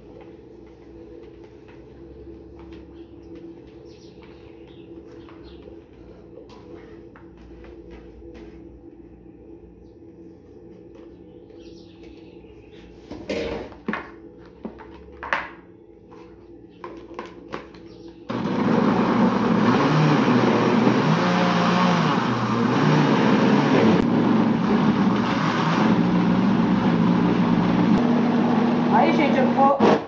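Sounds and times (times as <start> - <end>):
blender motor running: 18.3 - 30.0.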